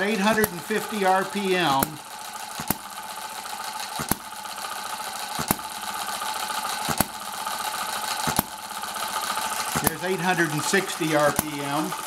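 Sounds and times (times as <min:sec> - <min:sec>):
engine mechanical clatter: 0:00.0 - 0:12.0
engine firing pops: 0:01.7 - 0:02.9, 0:03.9 - 0:04.3, 0:05.4 - 0:05.7, 0:06.8 - 0:07.2, 0:08.2 - 0:08.6, 0:09.7 - 0:10.0.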